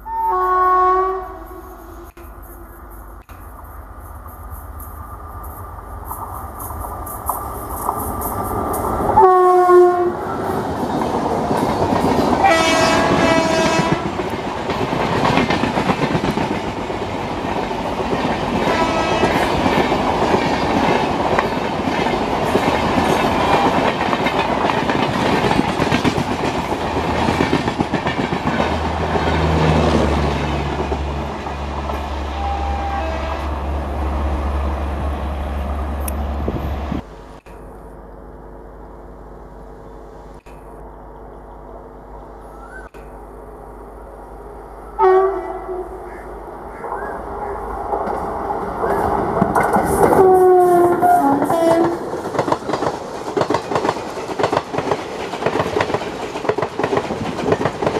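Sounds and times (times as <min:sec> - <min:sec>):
locomotive horn: 0:00.0 - 0:02.2, 0:09.2 - 0:10.4, 0:12.4 - 0:14.2, 0:18.6 - 0:19.6, 0:32.2 - 0:33.9, 0:45.0 - 0:46.3, 0:50.0 - 0:52.1
wheels clattering over rail joints: 0:04.8 - 0:33.2, 0:47.8 - 0:57.9.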